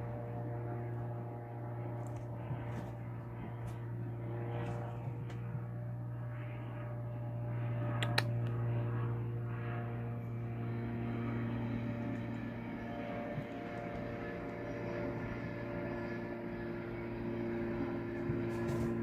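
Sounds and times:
sharp click: 8.0 - 8.6.

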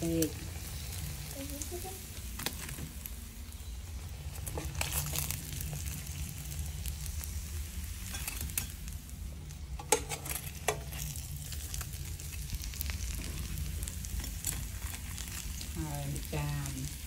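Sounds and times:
food sizzling in a pan: 0.0 - 17.0
utensil stirring food: 4.2 - 15.9.

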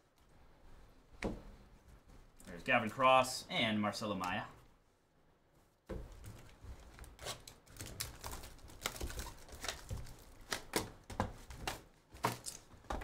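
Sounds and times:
plastic wrap crinkling: 6.1 - 12.8.

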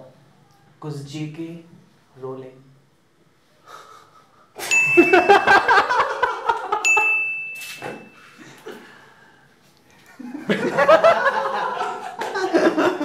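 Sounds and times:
men laughing: 4.6 - 7.0, 10.2 - 13.0
bell-like ding effect: 4.7 - 5.8, 6.8 - 8.4.

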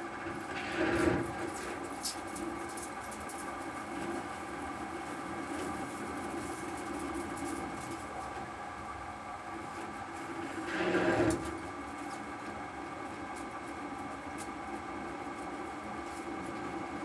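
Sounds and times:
lathe cutting metal: 10.6 - 11.5.

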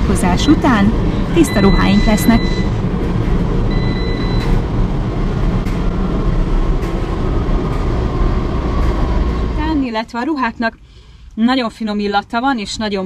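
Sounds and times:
steady low rumble: 0.0 - 12.8
dryer control panel beep: 1.2 - 2.8, 3.7 - 4.8.

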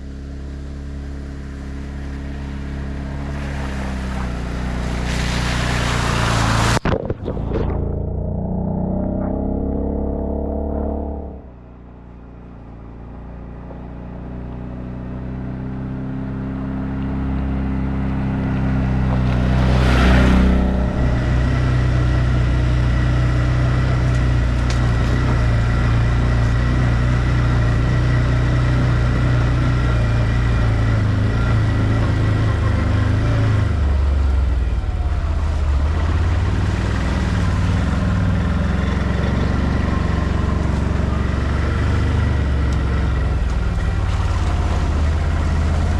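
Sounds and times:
atv engine passing: 0.8 - 11.4, 15.0 - 45.9.

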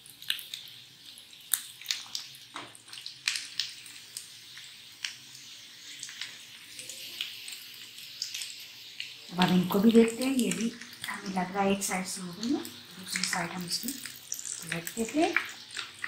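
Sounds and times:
food sizzling in hot oil: 0.0 - 16.0
oil popping and spitting: 13.0 - 16.0.

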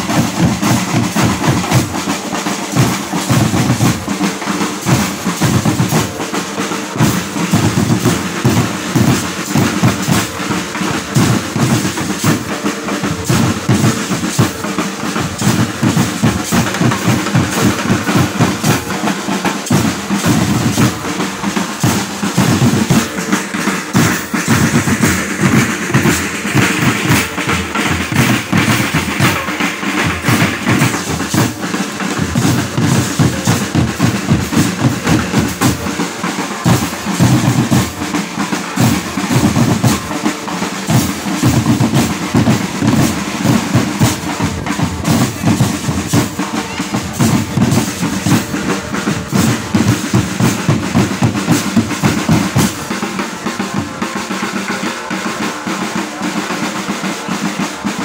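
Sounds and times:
bass drums: 0.0 - 38.1
snare drums: 0.0 - 58.0.

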